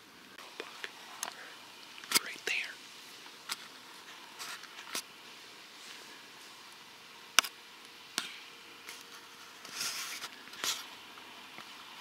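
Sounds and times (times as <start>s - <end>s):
faint steady hiss: 0.0s - 12.0s
short rustle: 8.9s - 11.0s.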